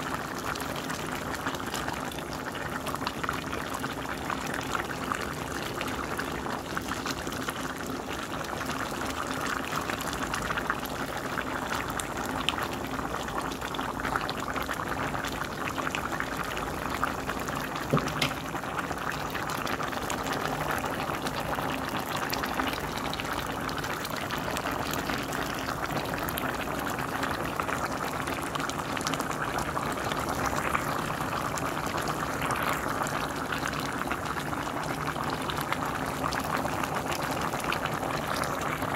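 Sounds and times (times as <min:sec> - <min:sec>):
pot boiling with bubbling pops: 0:00.0 - 0:38.9.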